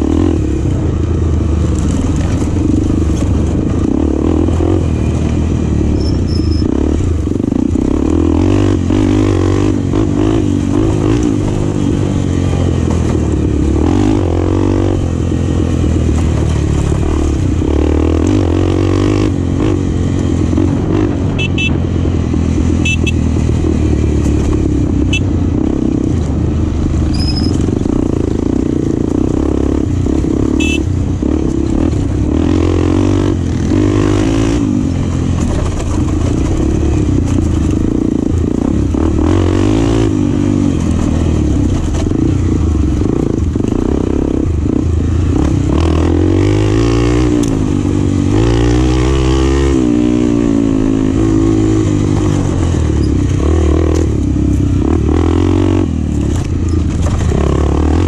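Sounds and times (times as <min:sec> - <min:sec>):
dirt bike engine revving: 0:01.6 - 0:26.2, 0:27.1 - 0:35.1, 0:36.2 - 0:58.0.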